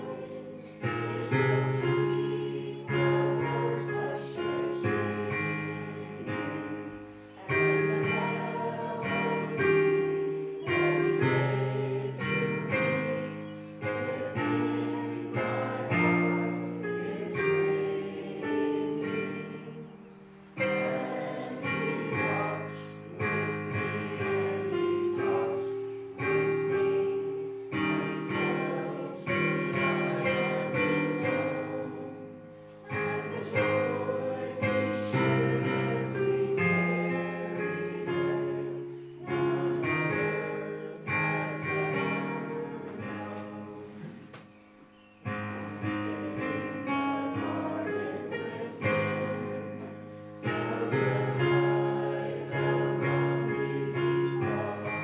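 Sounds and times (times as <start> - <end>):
congregation singing a hymn: 0.0 - 55.0.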